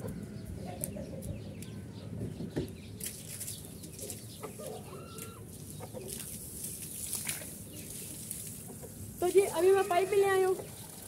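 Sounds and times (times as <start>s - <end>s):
chickens clucking: 3.8s - 11.0s
chicken drawn-out call: 4.5s - 6.1s.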